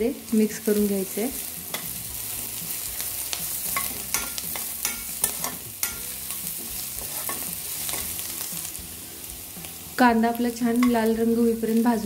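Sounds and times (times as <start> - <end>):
onion and garlic sizzling in oil: 0.0 - 12.0
spatula scraping and knocking pan: 3.4 - 8.2.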